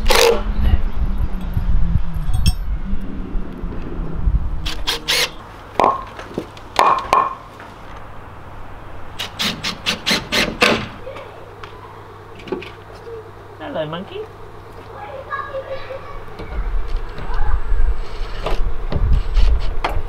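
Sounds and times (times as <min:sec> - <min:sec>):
cordless drill driving screws: 0:04.7 - 0:05.4.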